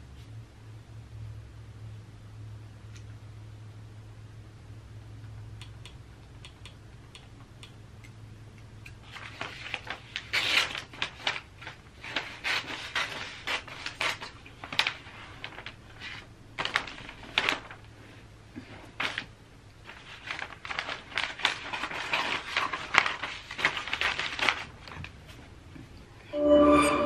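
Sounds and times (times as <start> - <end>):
wrapping paper crinkling: 9.1 - 18.0, 18.8 - 25.2.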